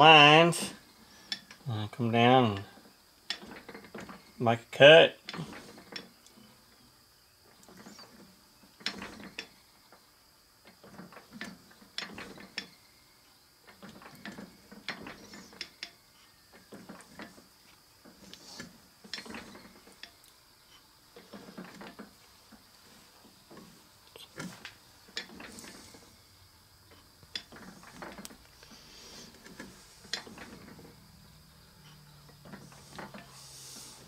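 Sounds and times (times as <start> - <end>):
lathe tool scraping and clicking: 24.4 - 26.1, 26.9 - 31.0.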